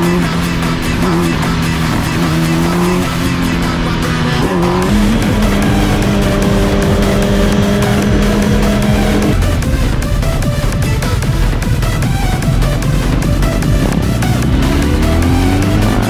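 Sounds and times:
motorcycle engine revving high: 0.0s - 16.0s.

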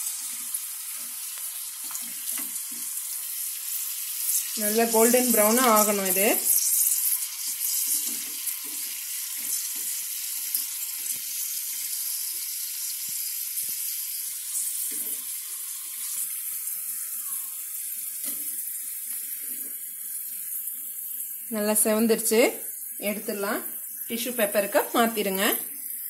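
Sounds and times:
sizzling hiss of deep-frying: 0.0s - 26.0s.

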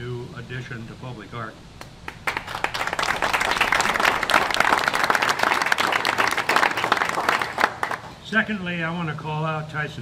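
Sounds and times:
audience applauding: 2.1s - 8.1s.

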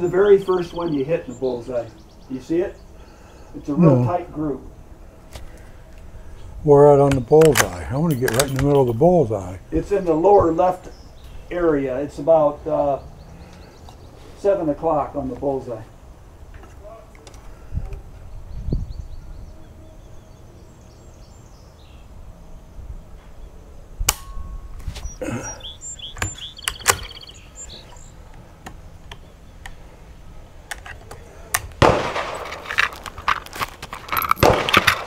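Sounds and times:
rifle bolt clicks: 7.1s - 8.8s
rustling handling noise: 30.7s - 35.0s
rifle shot: 31.8s - 33.1s, 34.3s - 35.0s.

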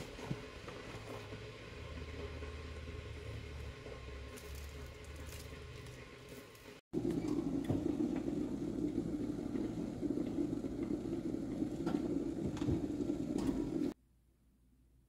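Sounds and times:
oven fan humming: 0.0s - 14.0s.

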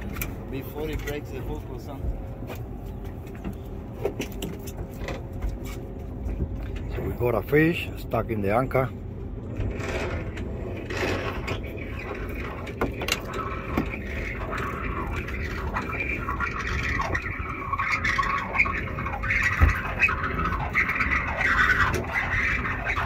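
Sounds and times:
steady low rumble: 0.0s - 23.0s
rope scraping against boat: 3.4s - 7.4s, 9.5s - 23.0s.

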